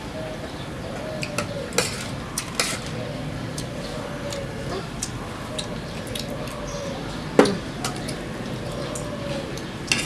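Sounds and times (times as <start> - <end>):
spoons clinking and scraping plates: 1.8 - 2.9.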